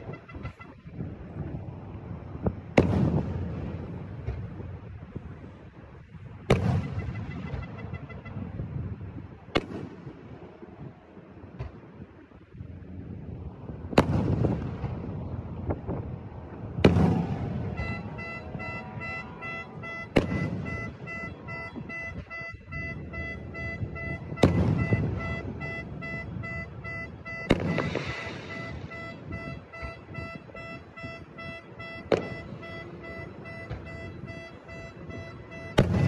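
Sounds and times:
car alarm beeping: 0:00.0 - 0:01.5, 0:06.5 - 0:08.6, 0:17.0 - 0:36.0
firework shells booming: 0:02.4 - 0:04.8, 0:06.4 - 0:08.6, 0:13.8 - 0:36.0.

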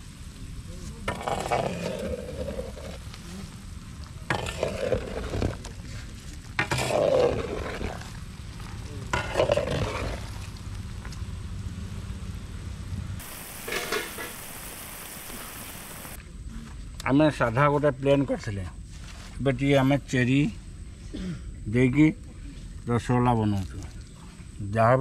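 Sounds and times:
ladle scraping a pot: 0:13.5 - 0:14.4.

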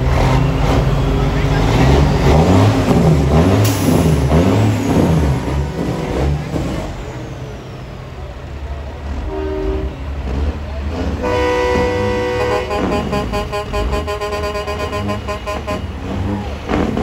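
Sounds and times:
diesel truck engine revving: 0:00.0 - 0:17.0
truck horn: 0:04.4 - 0:06.6, 0:09.1 - 0:16.4.

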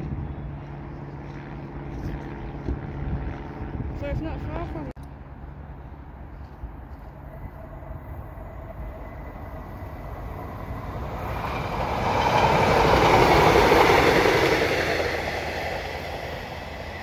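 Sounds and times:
train passing at speed: 0:04.2 - 0:17.0.

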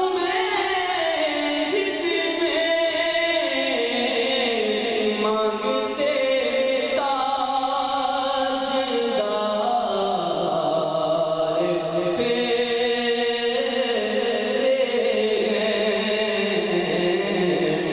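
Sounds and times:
man singing devotional song: 0:00.0 - 0:17.9.

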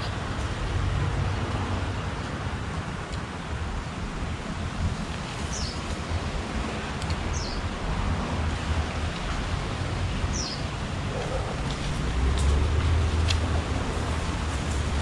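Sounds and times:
steady outdoor noise: 0:00.0 - 0:15.0.

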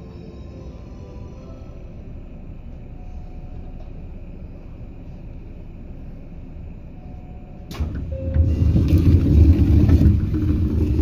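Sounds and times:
electric train running: 0:00.0 - 0:11.0
loud deep rumble: 0:08.4 - 0:11.0.

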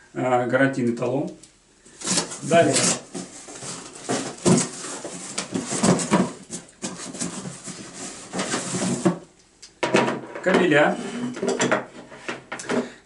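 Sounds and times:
cardboard rustling and scraping: 0:01.9 - 0:09.3.

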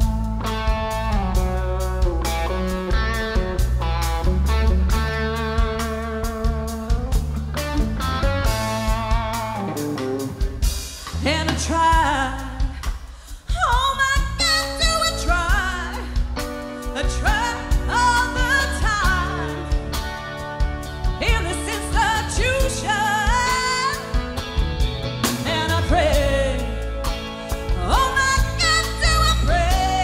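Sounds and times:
rock band playing: 0:00.0 - 0:30.0
woman singing: 0:11.0 - 0:20.2, 0:21.0 - 0:24.4, 0:25.4 - 0:30.0.

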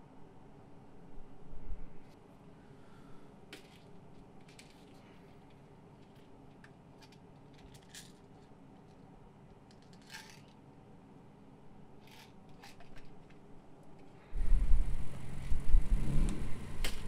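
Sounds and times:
low room hum: 0:00.0 - 0:17.0
small clicks and rustles: 0:03.5 - 0:10.6, 0:12.0 - 0:14.2.

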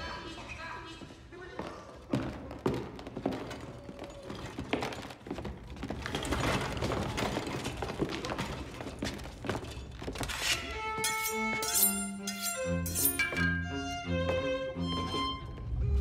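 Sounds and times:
footsteps: 0:00.4 - 0:16.0
tableware clattering: 0:09.4 - 0:13.6.

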